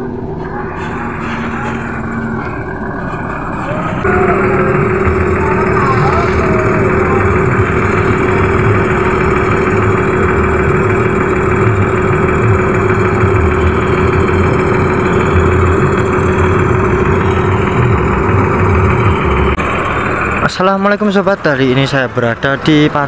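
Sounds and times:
steady tone: 0:00.0 - 0:22.4
bus diesel engine idling: 0:00.0 - 0:23.0.

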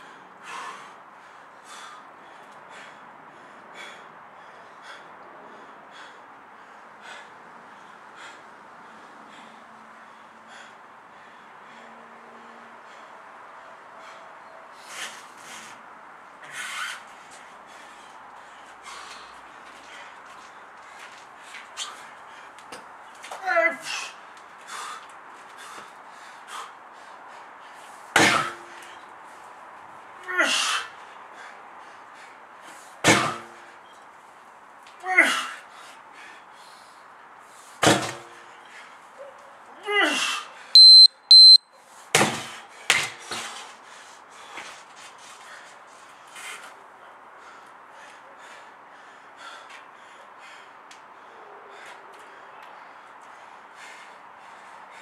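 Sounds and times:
man breathing hard: 0:00.0 - 0:23.0, 0:23.8 - 0:29.3, 0:30.3 - 0:33.9, 0:35.2 - 0:37.8, 0:42.5 - 0:55.0
sledgehammer striking rubber tyre: 0:28.2 - 0:28.7, 0:33.0 - 0:33.6, 0:37.8 - 0:38.3, 0:42.2 - 0:43.5.

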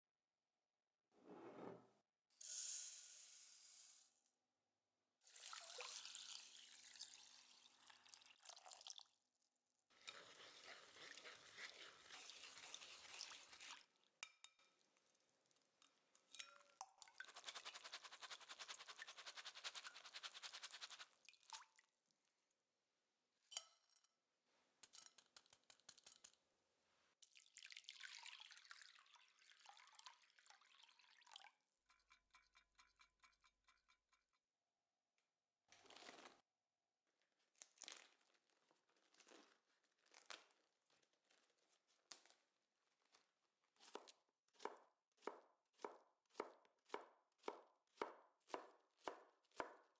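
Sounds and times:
lentils poured into metal sieve: 0:02.4 - 0:04.1, 0:17.3 - 0:21.1.

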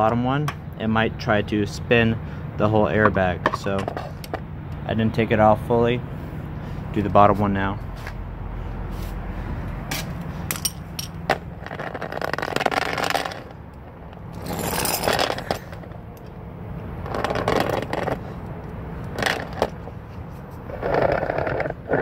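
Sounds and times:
low steady hum: 0:00.0 - 0:20.9
tools scraping metal: 0:10.5 - 0:11.2.

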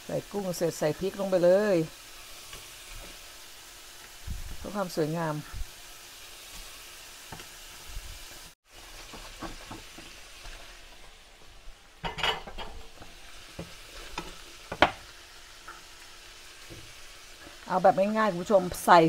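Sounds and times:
food sizzling in a frying pan: 0:00.0 - 0:19.0
wooden spoon scraping a pan: 0:08.2 - 0:11.2, 0:12.1 - 0:19.0.

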